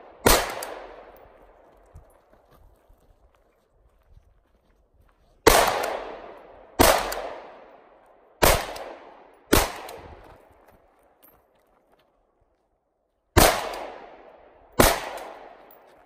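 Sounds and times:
rifle shots echoing: 0.0 - 1.6, 5.4 - 10.2, 13.4 - 15.8.

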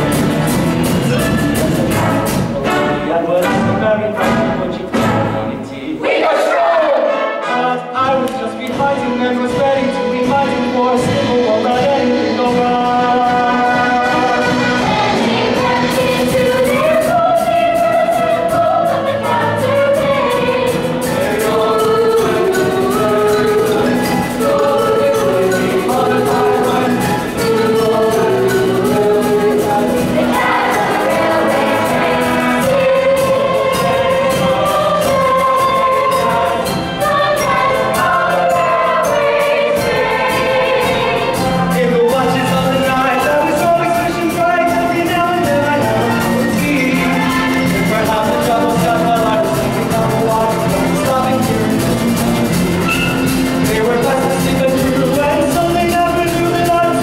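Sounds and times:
instrumental accompaniment: 0.0 - 57.0.

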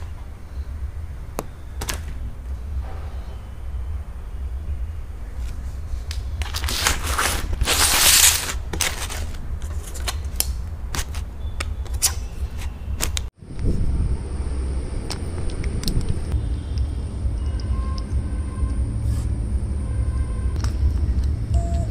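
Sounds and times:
low rumble: 2.5 - 6.5, 13.4 - 21.9
aluminium foil trays crinkling: 6.4 - 11.2.

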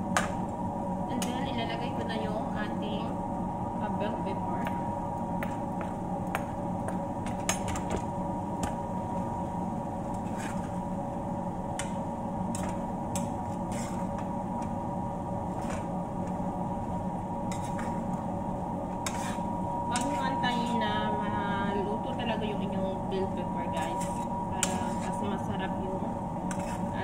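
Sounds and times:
steady background hum: 0.0 - 27.0
metal spoon scraping frying pan: 13.6 - 14.1, 17.5 - 18.0, 19.0 - 20.8, 23.8 - 25.3, 26.5 - 27.0.

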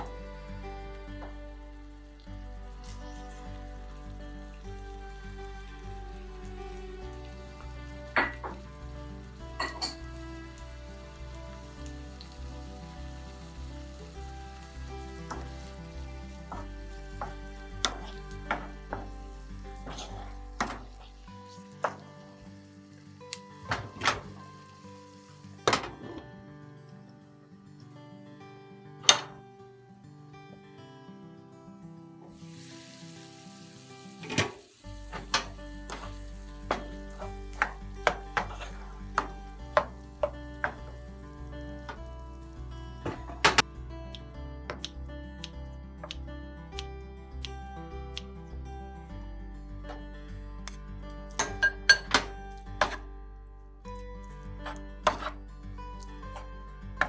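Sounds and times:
background music with steady beat: 0.0 - 22.2
food sizzling in a frying pan: 0.0 - 27.9, 32.3 - 43.7
soft background music: 0.0 - 57.0
wooden spoon knocking on pan: 16.5 - 19.2, 21.8 - 22.1, 35.2 - 40.9.

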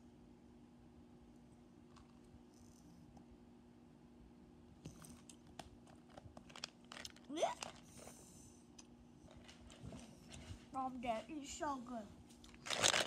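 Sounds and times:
gum packet crinkling and tearing: 6.5 - 7.8, 12.5 - 13.0.

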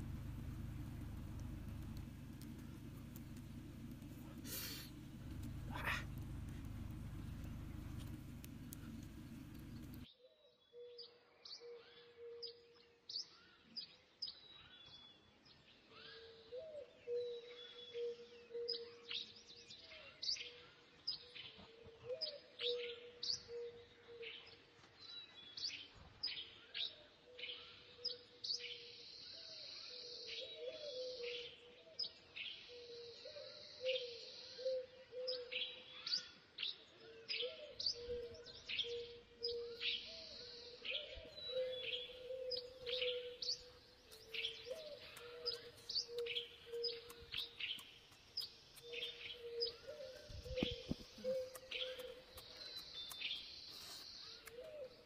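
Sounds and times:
birds chirping: 0.0 - 10.1, 37.7 - 55.0
high hiss: 3.4 - 6.2.

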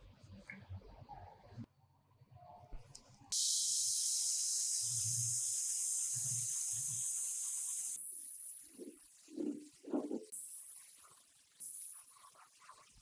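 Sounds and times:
paint spray gun hissing: 3.4 - 13.0.

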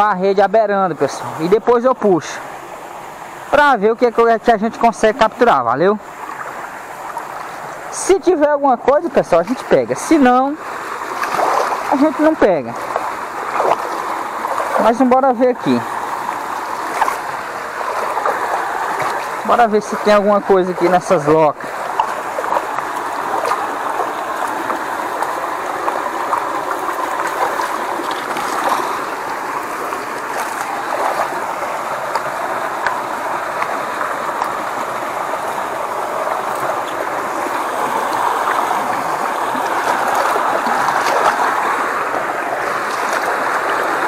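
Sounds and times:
stream water rushing and gurgling: 0.0 - 44.0
faint small splashes: 10.7 - 14.9, 15.8 - 19.5, 21.6 - 44.0.

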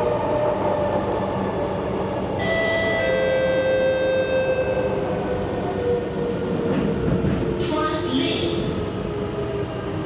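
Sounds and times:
train running rumble: 0.0 - 10.0
two-note descending chime: 2.4 - 4.9.

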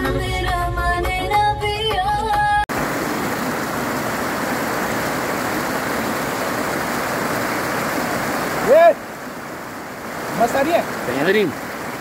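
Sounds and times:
music: 0.0 - 2.7
stream water flowing: 2.7 - 12.0.

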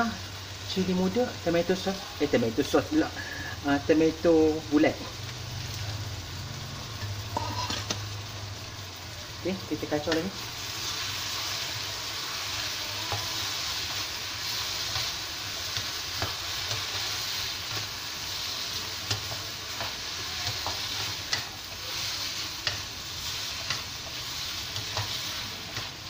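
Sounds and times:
food sizzling in a wok: 0.0 - 26.0
spatula scraping pan: 6.9 - 8.1, 10.0 - 26.0.

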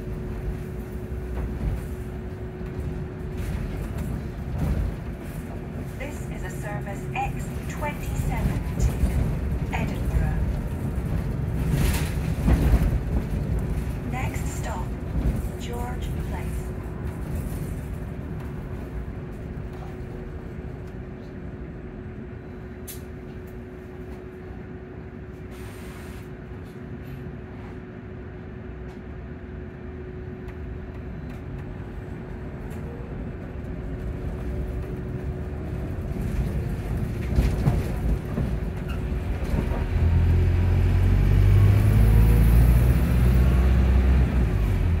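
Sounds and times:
deep low rumble: 0.0 - 21.4
bus hum and rattle: 0.0 - 45.0.

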